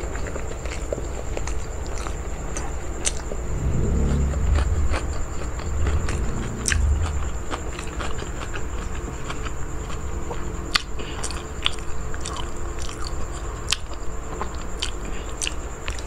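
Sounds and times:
low rumble: 3.2 - 8.6.

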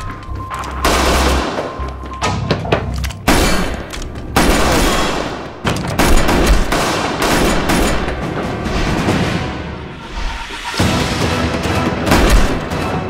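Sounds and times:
dramatic background music: 0.0 - 13.0
rapid automatic gunfire: 6.0 - 8.3.

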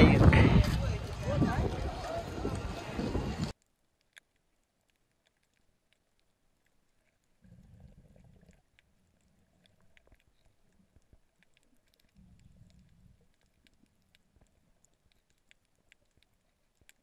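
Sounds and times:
faint clicks and crackles: 0.0 - 17.0.

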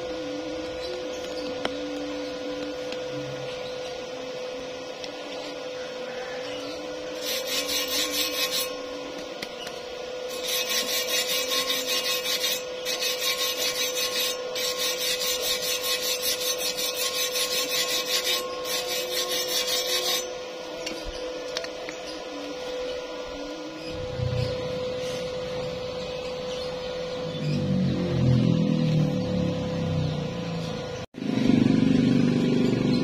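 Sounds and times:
steel tool scraping metal: 6.4 - 22.2.

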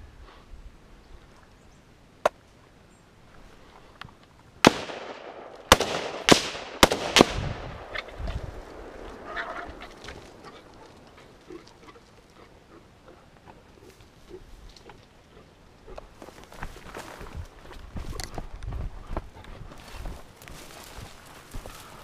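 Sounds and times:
gunshots with echo: 4.6 - 9.0.

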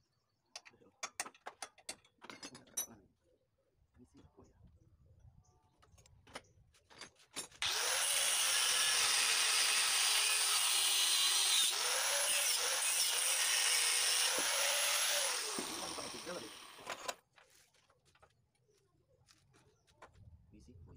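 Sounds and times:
angle grinder cutting metal: 7.6 - 17.1.

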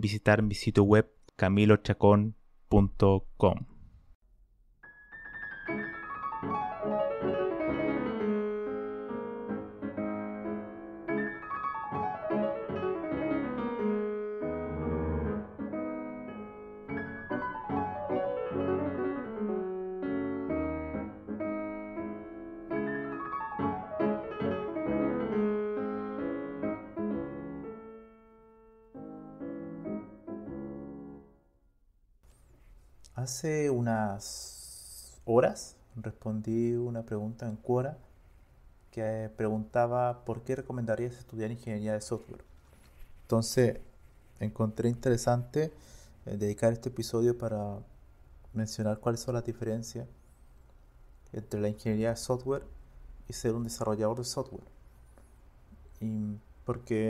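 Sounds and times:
piano music: 4.8 - 31.5.

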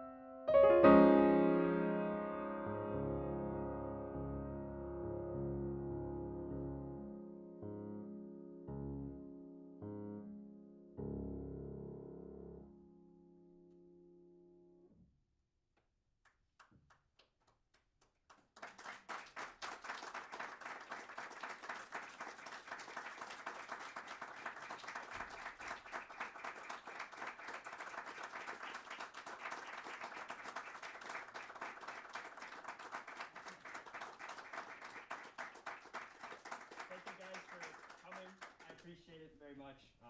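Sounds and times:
grand piano chord: 0.0 - 14.8
audience applause: 18.3 - 39.0.

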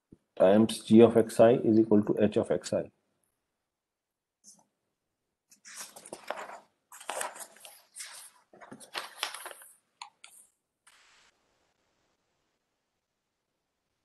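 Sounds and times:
short faint hiss: 10.9 - 11.4.

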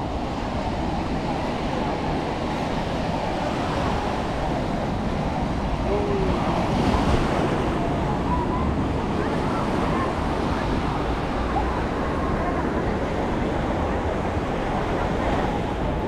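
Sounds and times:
faint beach crowd chatter: 0.0 - 16.0
ocean surf breaking: 0.0 - 16.0.

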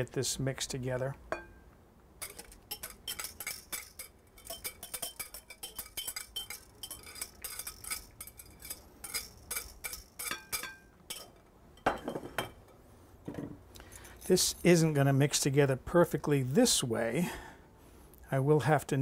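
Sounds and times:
utensil scraping glass bowl: 2.2 - 11.3.

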